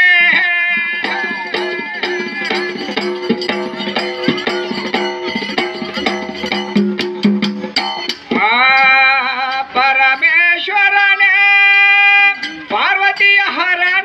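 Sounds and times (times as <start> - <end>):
man singing long notes: 0.0 - 2.9, 8.3 - 14.0
sharp clicking percussion: 0.0 - 14.0.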